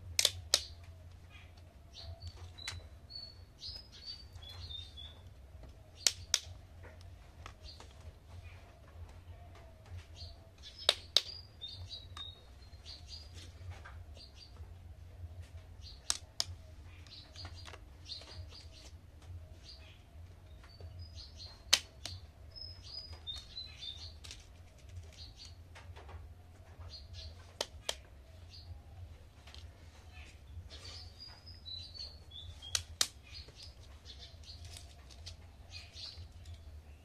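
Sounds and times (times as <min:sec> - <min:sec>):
steady low hum: 0:00.0 - 0:37.0
plastic toys clacking: 0:24.1 - 0:25.5.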